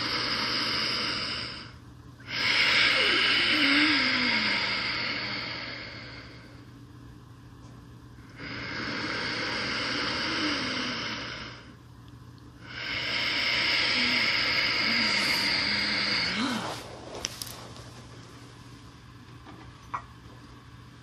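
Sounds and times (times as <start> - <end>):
slow breathing close to microphone: 0.0 - 6.7, 8.3 - 11.8, 12.6 - 19.1.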